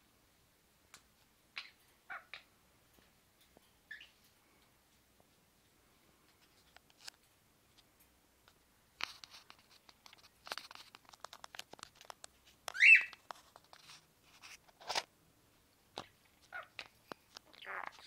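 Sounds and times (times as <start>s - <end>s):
parrot squawking: 1.6s - 2.5s, 12.7s - 13.1s, 16.5s - 16.9s, 17.5s - 18.0s
scratchy clicks and rustles: 6.3s - 15.1s.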